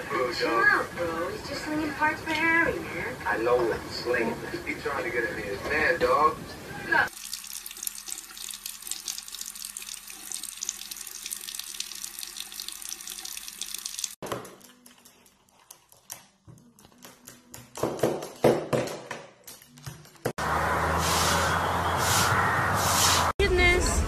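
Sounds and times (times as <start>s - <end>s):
water running from faucet: 7.1s - 14.2s.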